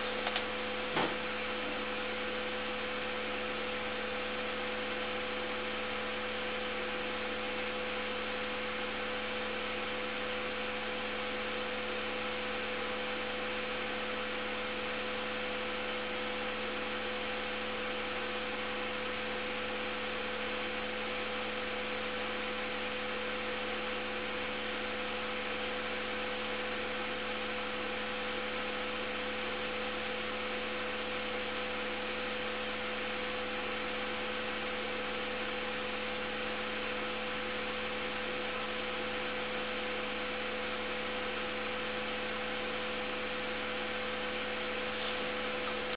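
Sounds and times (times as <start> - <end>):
steady two-tone hum: 0.0 - 45.9.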